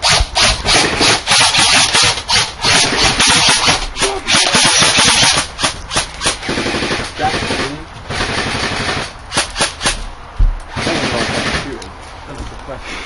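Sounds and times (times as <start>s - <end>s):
airsoft automatic fire: 0.0s - 10.0s, 10.7s - 11.8s
airsoft single shots: 0.0s - 10.1s.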